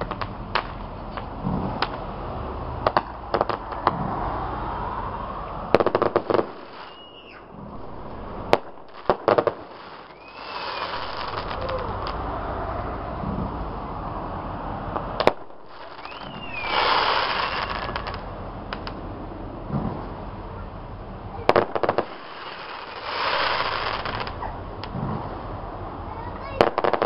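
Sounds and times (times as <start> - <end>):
firework bangs: 0.0 - 27.0
cluster of cracks: 5.7 - 12.6, 14.9 - 19.0, 21.5 - 25.4
falling firework whistle: 5.7 - 13.4, 15.2 - 18.2, 21.5 - 24.6
crackling fizz: 7.8 - 12.7, 15.5 - 18.2, 21.6 - 25.4.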